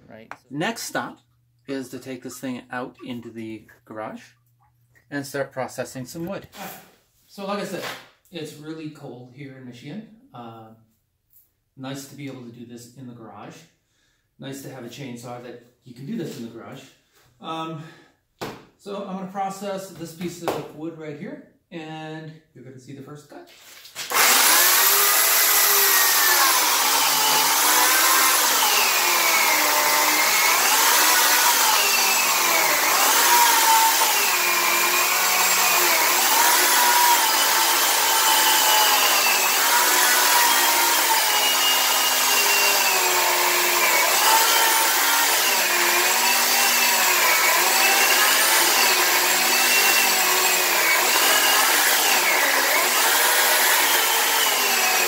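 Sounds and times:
electric chainsaw cutting log: 24.0s - 55.0s.

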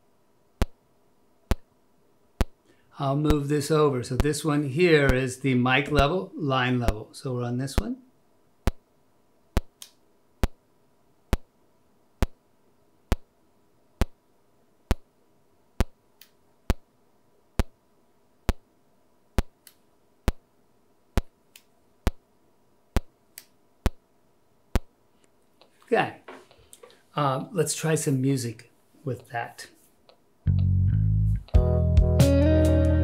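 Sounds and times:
faint steady hum: 0.0s - 31.6s
sharp test clicks: 1.5s - 1.7s, 9.6s - 10.6s, 12.2s - 12.4s, 13.1s - 13.3s, 14.9s - 15.1s, 19.4s - 20.4s, 21.2s - 22.2s.

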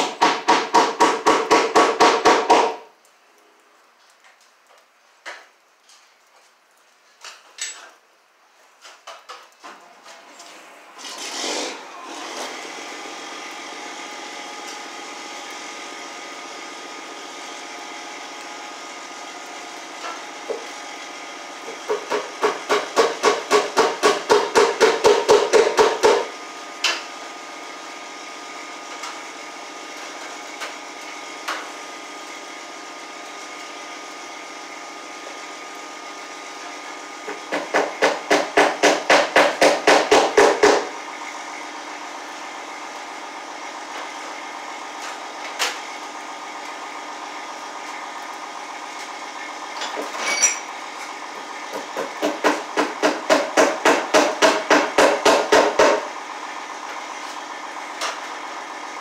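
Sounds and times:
hammer striking wooden beam: 0.0s - 2.9s, 21.8s - 26.3s, 37.5s - 40.9s, 51.7s - 56.1s.

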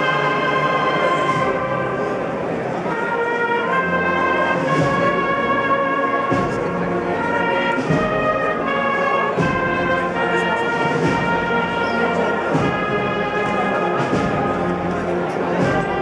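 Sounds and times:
brass chords: 0.0s - 16.0s
steady drum strikes: 4.6s - 5.6s, 6.2s - 16.0s.

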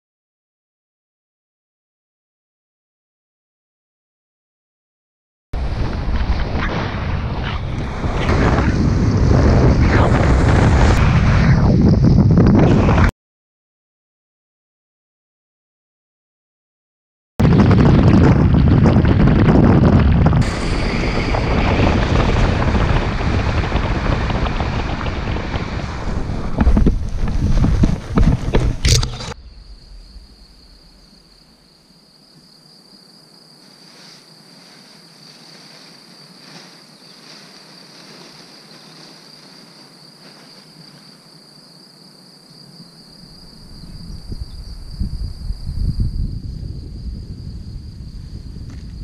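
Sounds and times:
wind rushing over microphone: 5.6s - 13.1s, 17.4s - 31.5s, 43.3s - 49.0s
high insect trill: 28.8s - 49.0s
faint rustles: 33.6s - 41.3s.

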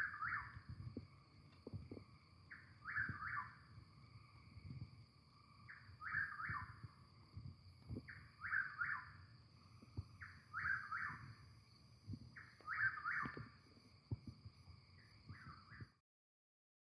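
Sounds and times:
bird whistling song: 0.0s - 0.7s, 2.5s - 3.6s, 5.7s - 6.9s, 8.0s - 9.3s, 10.2s - 11.4s, 12.4s - 13.6s, 15.0s - 16.0s.

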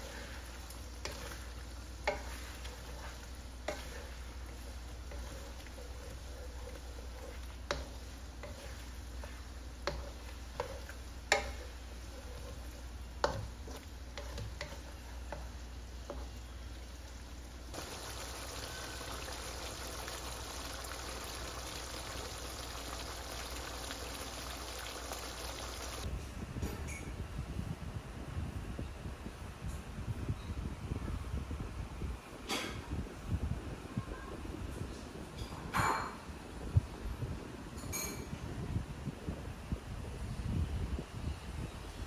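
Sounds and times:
food sizzling in a wok: 0.0s - 26.1s
spatula knocking against pan: 2.0s - 4.1s, 9.8s - 12.4s.

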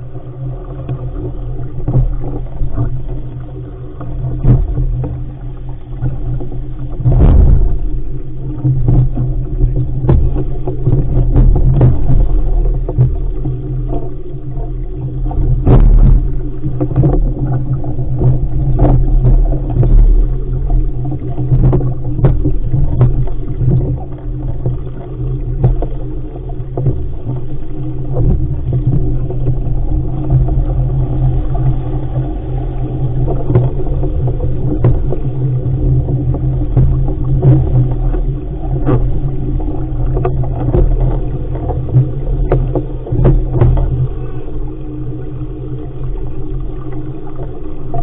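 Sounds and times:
water rushing past hull: 0.0s - 48.0s
waves slapping hull: 0.0s - 48.0s
wind buffeting microphone: 6.0s - 13.4s.

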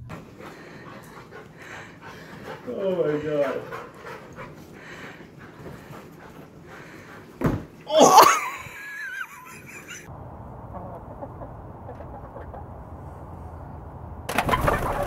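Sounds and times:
hens clucking: 0.0s - 7.3s, 8.8s - 13.2s, 14.3s - 15.0s
hens squawking and flapping: 0.2s - 7.1s, 9.2s - 12.8s, 14.3s - 15.0s.

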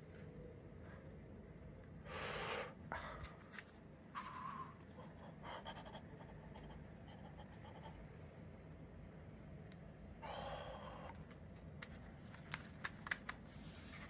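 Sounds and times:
paper packaging rustling: 11.8s - 14.0s.

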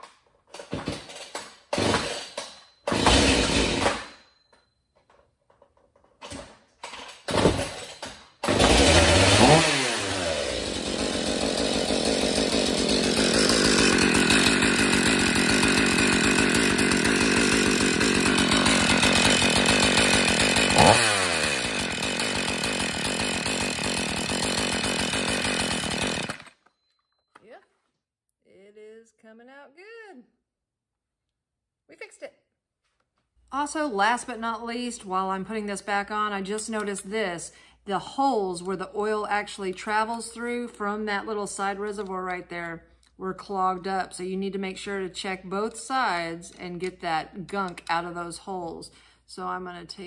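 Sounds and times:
chainsaw starting and revving: 0.7s - 4.2s, 7.1s - 26.7s.

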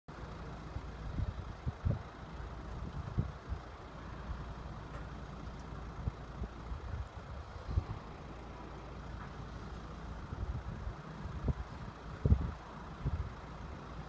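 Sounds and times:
wind buffeting microphone: 0.9s - 3.7s, 6.0s - 8.4s, 10.2s - 13.4s.

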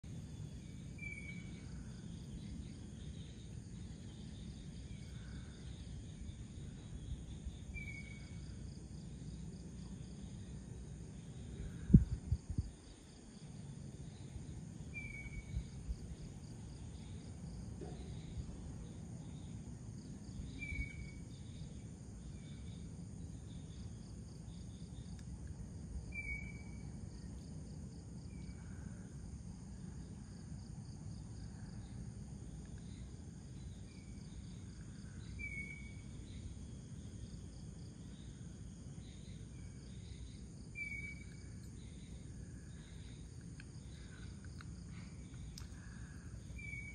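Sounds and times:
crickets and insects trilling: 0.0s - 46.9s
faint low rumble: 0.0s - 46.9s.

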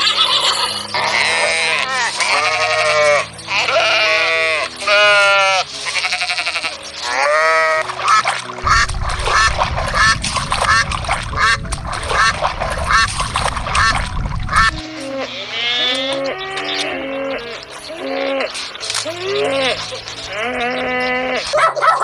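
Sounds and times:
goat kids bleating: 0.0s - 7.9s, 14.6s - 21.6s
waterfowl calling: 0.0s - 22.0s
wind rumbling on microphone: 8.6s - 14.9s.

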